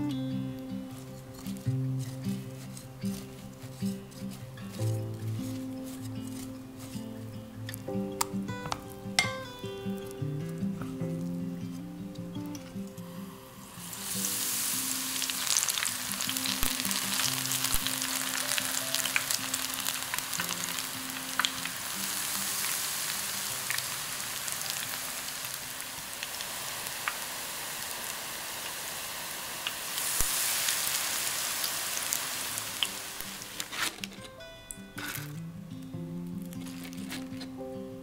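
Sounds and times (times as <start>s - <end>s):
oil pops and crackles: 0.9s - 13.1s, 15.2s - 27.3s, 29.6s - 35.4s, 36.4s - 37.6s
deep-frying sizzle in hot oil: 13.6s - 34.2s.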